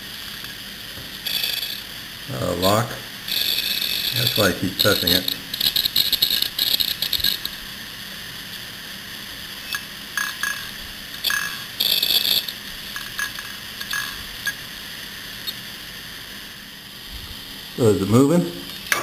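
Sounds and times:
hard disk platter whirring: 0:00.0 - 0:19.0
read-write head clicking: 0:01.2 - 0:01.9, 0:03.3 - 0:07.6, 0:09.7 - 0:14.6.

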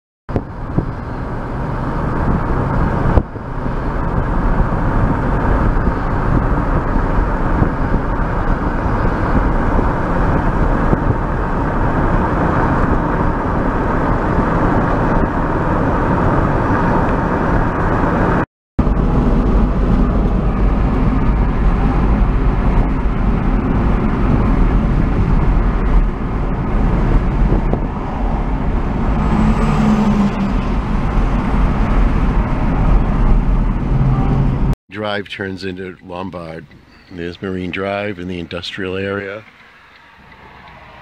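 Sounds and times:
car road noise from inside: 0:00.3 - 0:34.8, 0:36.6 - 0:41.0.

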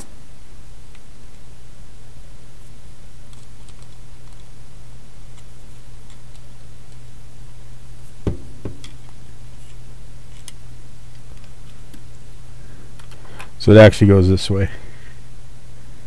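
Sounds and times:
steady low hum: 0:00.0 - 0:16.0
low knocks of object set down: 0:08.3 - 0:09.0.

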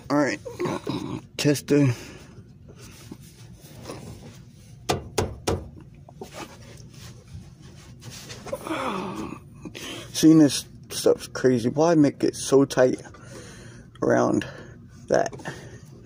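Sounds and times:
faint breathing: 0:13.1 - 0:16.0.

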